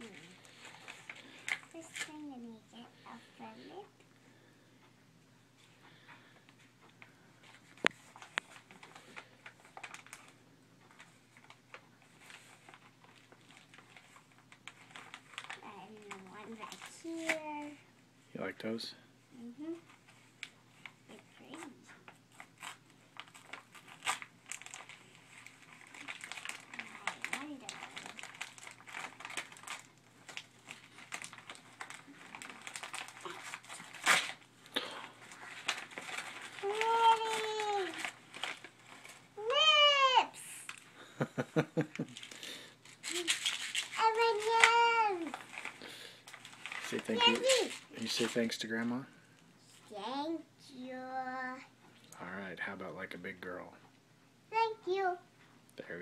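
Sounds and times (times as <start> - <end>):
paper crinkling and tearing: 7.4 - 17.7, 20.3 - 40.9, 41.8 - 48.6.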